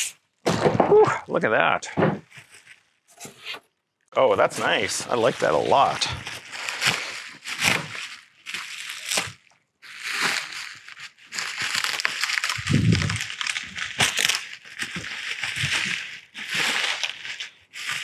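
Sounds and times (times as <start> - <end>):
plastic packaging crinkling: 4.6 - 18.0.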